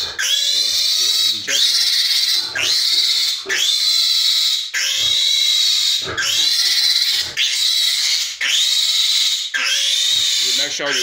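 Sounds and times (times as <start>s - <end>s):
piglet gasping: 0.0s - 3.8s
piglet squealing: 0.0s - 11.0s.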